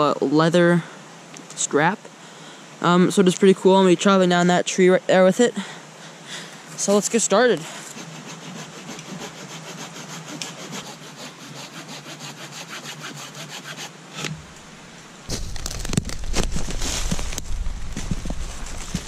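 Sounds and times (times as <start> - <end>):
saw cutting wood: 6.9 - 14.4.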